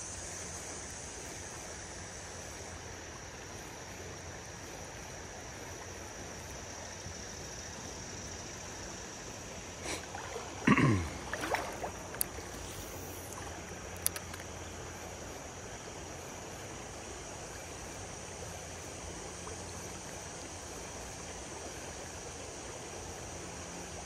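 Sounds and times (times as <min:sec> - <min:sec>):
creek current flowing: 0:00.0 - 0:24.0
sharp clicks: 0:14.0 - 0:14.4.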